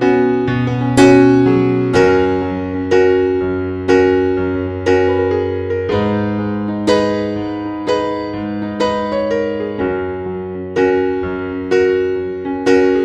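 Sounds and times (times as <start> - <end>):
slow gentle piano music: 0.0 - 13.0.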